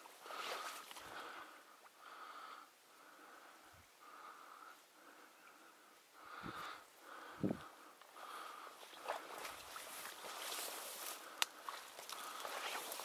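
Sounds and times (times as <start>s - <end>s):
faint wheezy breathing: 0.2s - 8.8s.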